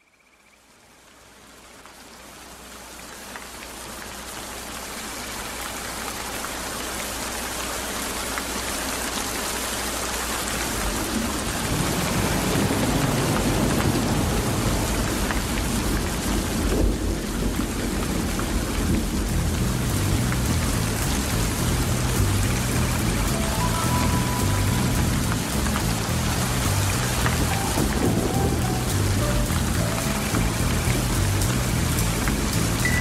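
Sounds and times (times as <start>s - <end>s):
heavy rain: 0.6s - 33.0s
rolling thunder: 10.8s - 33.0s.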